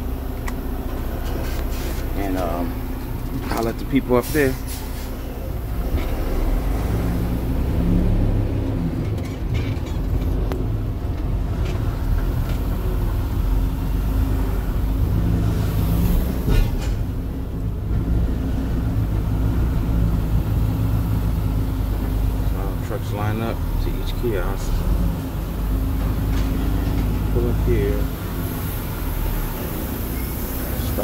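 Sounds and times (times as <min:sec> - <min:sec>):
diesel truck engine running: 0:00.0 - 0:31.0.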